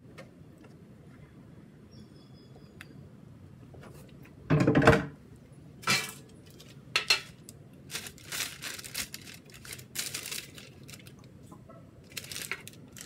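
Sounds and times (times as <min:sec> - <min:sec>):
paper crinkling and scraping: 0:07.9 - 0:11.2, 0:12.1 - 0:13.0.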